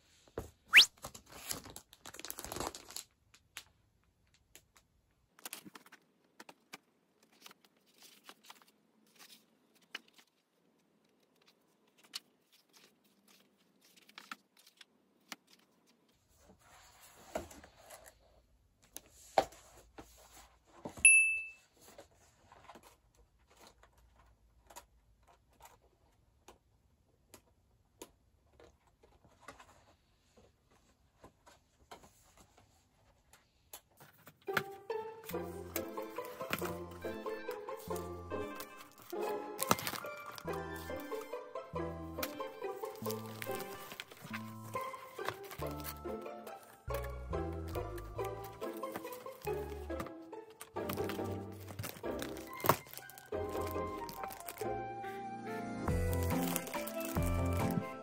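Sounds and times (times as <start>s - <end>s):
plastic crinkling: 0.7s - 16.0s, 37.8s - 41.3s, 42.2s - 49.9s, 50.6s - 54.8s, 55.9s - 58.0s
pages turning and rustling: 0.8s - 21.0s, 21.7s - 26.2s, 28.5s - 41.4s, 42.2s - 54.7s, 55.9s - 58.0s.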